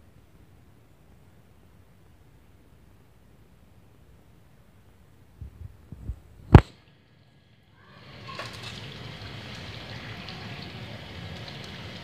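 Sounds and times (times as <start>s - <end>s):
oil sizzling deep-frying: 6.5s - 12.0s
oil popping and crackling: 8.0s - 12.0s.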